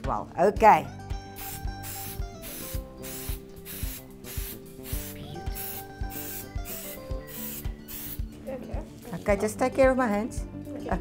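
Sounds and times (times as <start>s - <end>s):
background music with beat: 0.6s - 11.0s
spray can hissing: 1.3s - 8.4s.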